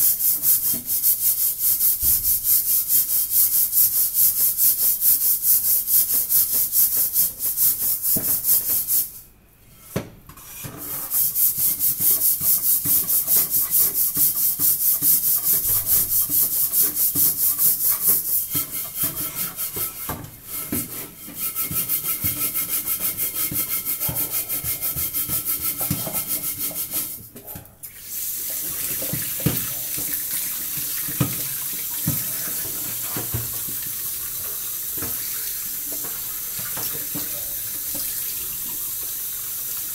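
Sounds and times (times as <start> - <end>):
scourer scrubbing metal pot: 10.4 - 27.2, 28.4 - 38.1
tap water running into sink: 28.0 - 39.9.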